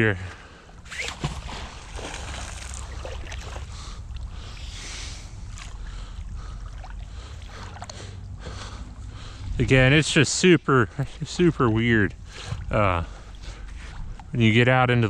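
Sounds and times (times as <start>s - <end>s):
water sloshing: 0.2s - 14.4s
rope hauled through water: 0.8s - 9.7s
wind rumble on microphone: 9.0s - 10.3s.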